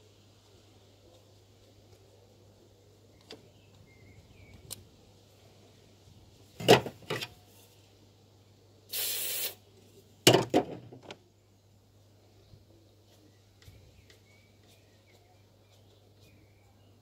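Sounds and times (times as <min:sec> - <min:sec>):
handling knocks and clatter: 0:06.6 - 0:07.4, 0:10.3 - 0:11.2
aerosol spray hiss: 0:08.9 - 0:09.6.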